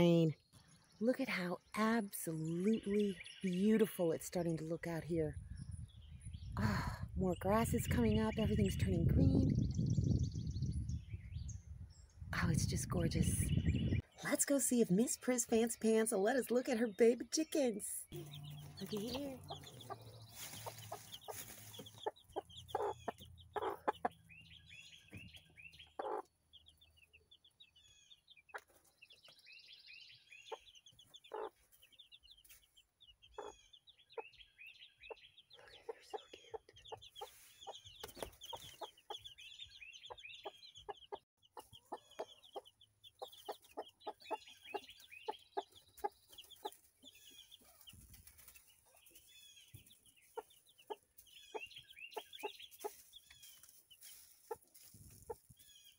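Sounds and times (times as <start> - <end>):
baby chicks peeping: 0.0 - 11.6, 12.4 - 55.9
hen clucking: 18.1 - 24.3, 25.8 - 26.8, 30.5 - 31.8, 33.3 - 34.3, 40.0 - 48.0.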